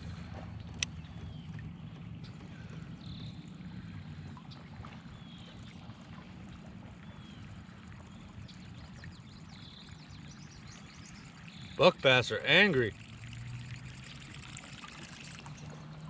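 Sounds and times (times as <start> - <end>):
water lapping around a kayak: 0.0 - 16.0.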